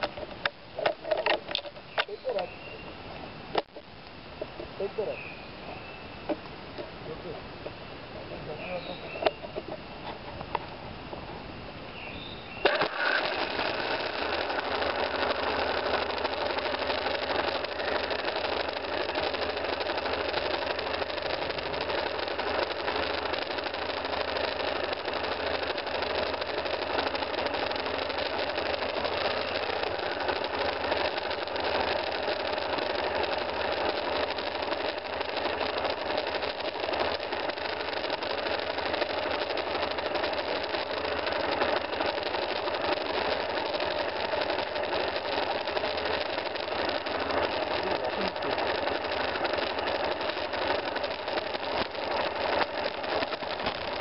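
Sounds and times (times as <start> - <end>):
motorcycle engine starting and idling: 12.2 - 54.0.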